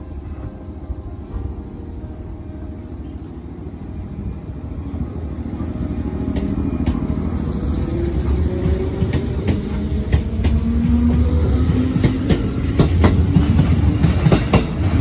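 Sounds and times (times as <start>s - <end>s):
electric train motors rumbling: 0.0s - 15.0s
wheels clicking over rail joints: 5.4s - 15.0s.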